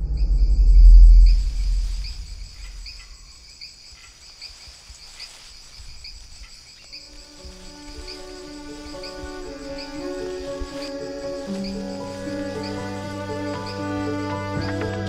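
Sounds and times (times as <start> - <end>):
low rumble: 0.0 - 3.2
crickets chirping: 0.0 - 15.0.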